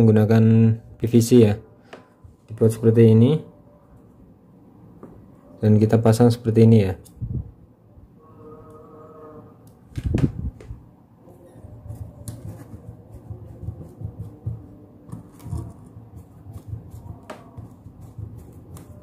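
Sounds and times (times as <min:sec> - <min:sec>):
rubbing and handling noise: 0:09.8 - 0:19.0.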